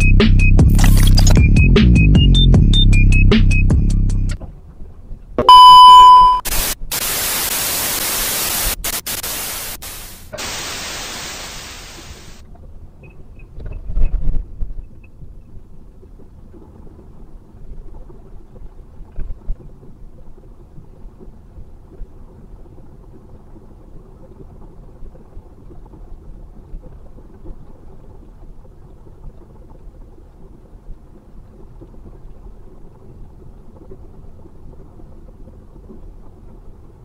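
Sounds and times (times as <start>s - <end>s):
loud electronic beep: 0.7s - 1.6s, 5.4s - 6.6s
tv static hiss: 0.8s - 1.4s, 6.4s - 12.4s.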